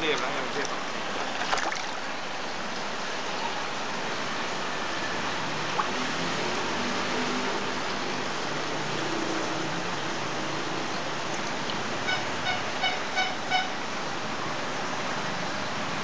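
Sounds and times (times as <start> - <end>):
water rushing in fish tank: 0.0 - 2.2, 5.2 - 12.0
water splashing: 0.0 - 2.5, 5.2 - 13.8.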